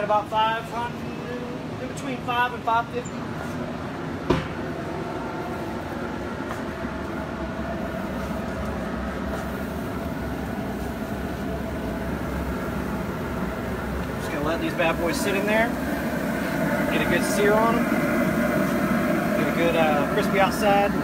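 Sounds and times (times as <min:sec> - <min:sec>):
pellet grill blowing rumble: 0:00.0 - 0:21.0
single knock: 0:04.3 - 0:04.6.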